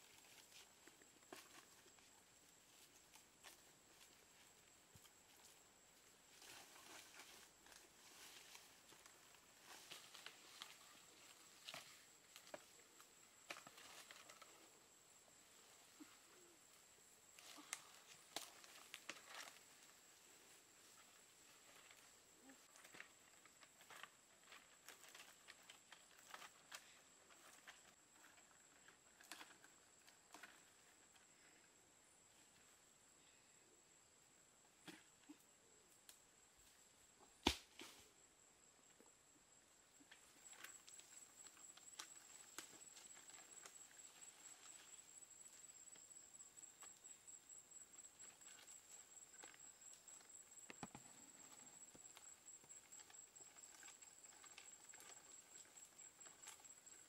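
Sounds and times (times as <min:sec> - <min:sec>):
palm fronds rustling: 0:00.0 - 0:29.6
high insect trill: 0:37.8 - 0:57.0.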